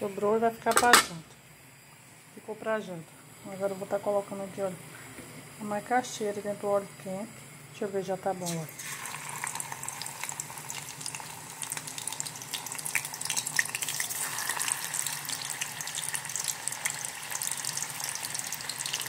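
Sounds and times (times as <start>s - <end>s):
food frying in hot oil: 7.8s - 19.0s.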